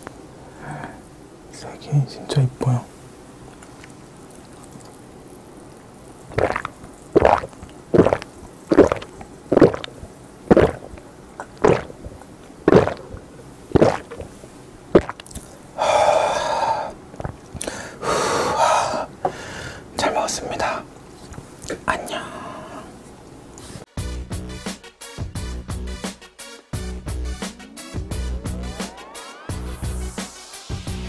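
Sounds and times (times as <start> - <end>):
person breathing out: 0.4 - 1.1, 15.8 - 17.0, 17.6 - 19.9, 22.0 - 23.0
person gulping a drink: 3.6 - 5.0, 5.7 - 15.6, 16.2 - 17.8.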